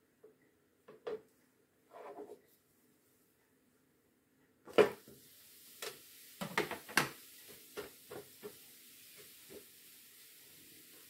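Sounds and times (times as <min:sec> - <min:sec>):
faint sizzle: 0:04.8 - 0:11.0.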